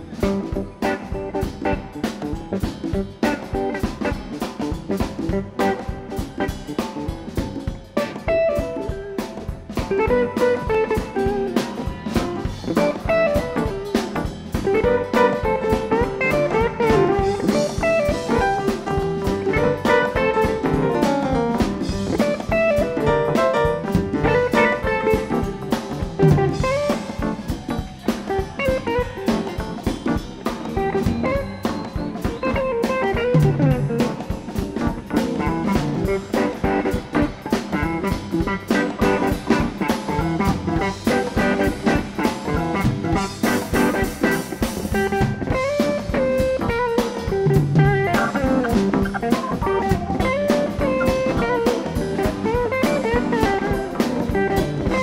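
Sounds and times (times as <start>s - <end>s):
bass guitar: 0.0s - 55.0s
drum kit: 0.0s - 55.0s
electric guitar lead: 0.0s - 55.0s.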